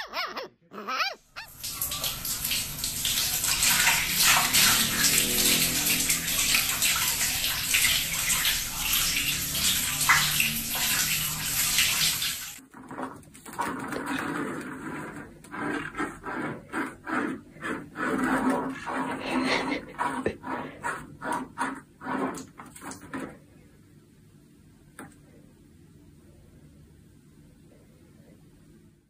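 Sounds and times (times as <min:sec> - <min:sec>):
puppy yelping: 0:00.0 - 0:01.7
water running into plastic bucket: 0:01.4 - 0:23.4.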